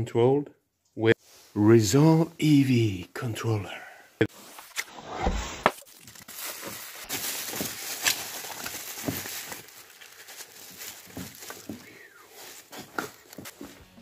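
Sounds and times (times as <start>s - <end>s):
bubble wrap crinkling: 5.6s - 14.0s
cardboard box handled: 6.5s - 13.8s.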